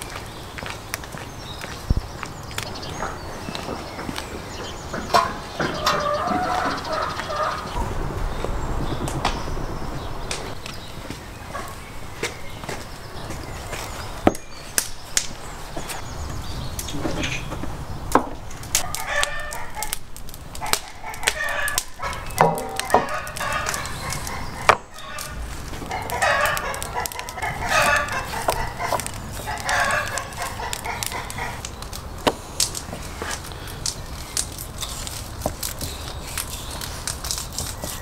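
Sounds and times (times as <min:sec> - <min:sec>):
chickens clucking: 0:02.9 - 0:07.8, 0:18.8 - 0:20.0, 0:20.6 - 0:32.0
rooster crowing: 0:05.7 - 0:07.7.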